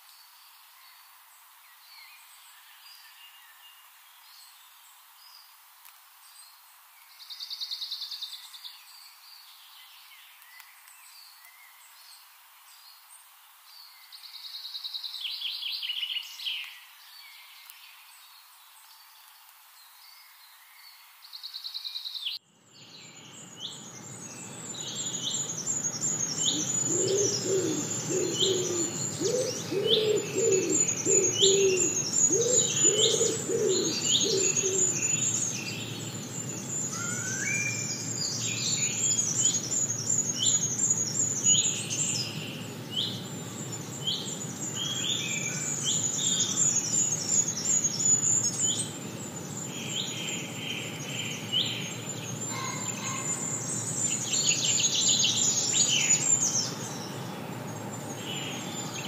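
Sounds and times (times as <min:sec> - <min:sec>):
birds singing and chirping: 0:22.3 - 0:59.0
low repeated bird notes: 0:23.0 - 0:59.0.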